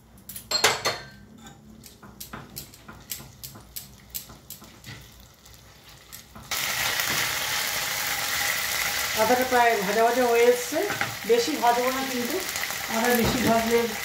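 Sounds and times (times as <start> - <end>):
paste sizzling: 5.3 - 14.0.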